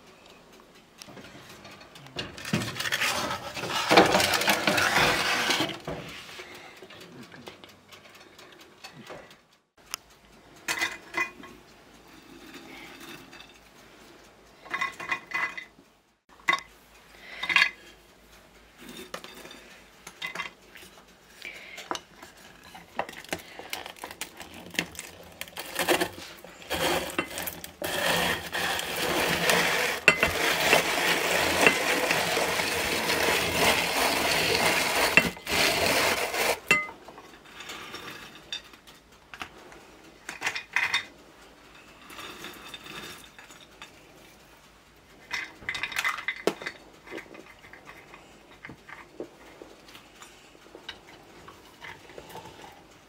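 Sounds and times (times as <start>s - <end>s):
kitchenware clinks and knocks: 1.2s - 6.1s, 14.7s - 15.8s
walnuts grinding in drum grater: 2.4s - 6.7s, 21.4s - 38.5s.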